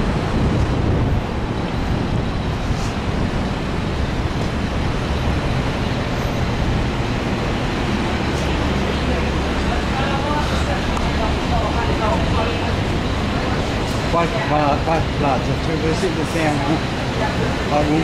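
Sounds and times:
vehicles passing on road: 0.0 - 18.0.

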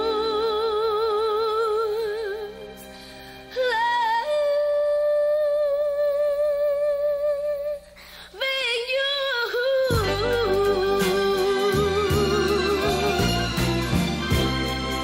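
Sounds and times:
low musical accompaniment: 0.0 - 7.0, 9.5 - 15.0
solo person singing: 3.5 - 14.2.

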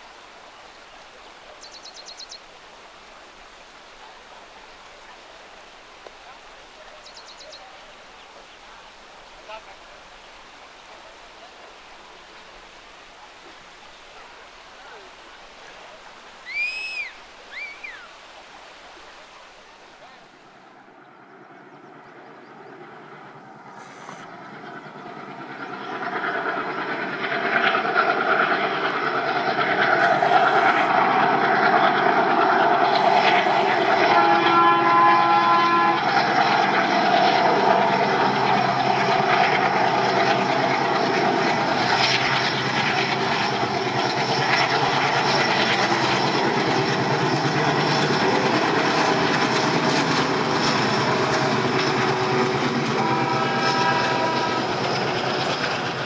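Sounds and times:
diesel locomotive passing: 0.2 - 56.0
train wheels on rails: 23.0 - 56.0
train horn: 29.7 - 41.2, 49.0 - 56.0.

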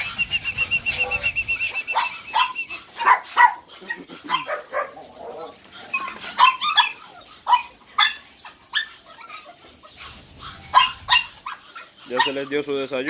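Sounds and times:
dogs barking and yipping: 0.0 - 13.0.

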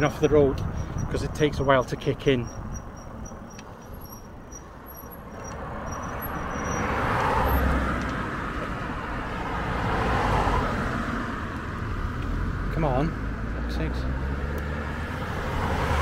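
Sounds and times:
traffic passing: 0.0 - 16.0
crickets chirping: 0.7 - 7.6.

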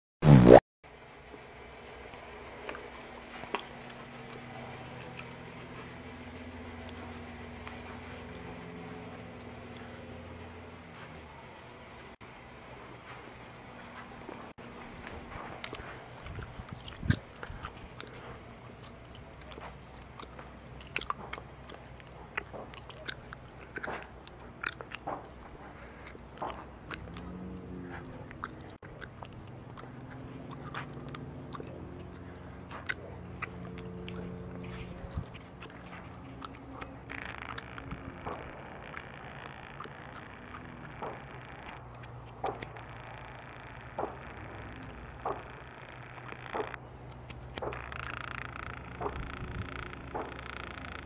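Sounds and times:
low steady hum: 0.2 - 51.0
gum chewing smacks: 2.6 - 10.0, 15.3 - 51.0.

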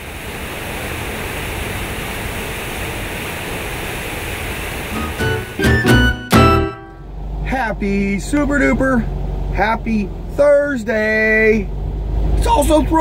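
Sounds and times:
fountain water splashing into pool: 0.0 - 5.1
musical notes: 4.9 - 7.2.

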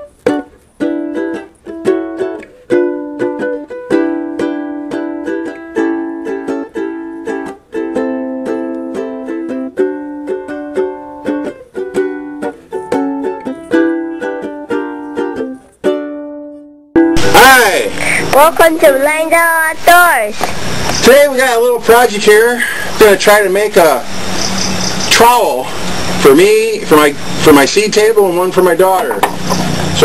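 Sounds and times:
plucked string instrument tune: 0.0 - 20.2.

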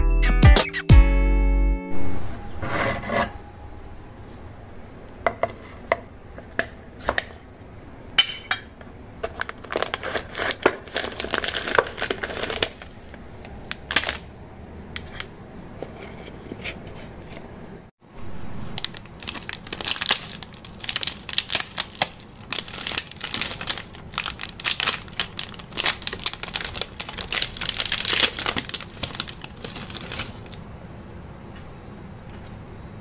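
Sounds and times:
plastic wrapper crinkling: 9.2 - 14.3, 18.3 - 30.6.

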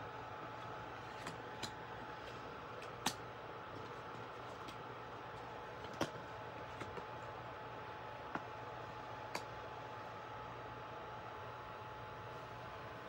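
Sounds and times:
cards clicking and tapping: 1.0 - 7.2.

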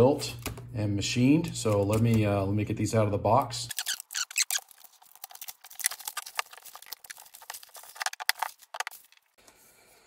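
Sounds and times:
plastic wrap crinkling and tearing: 3.7 - 9.4.

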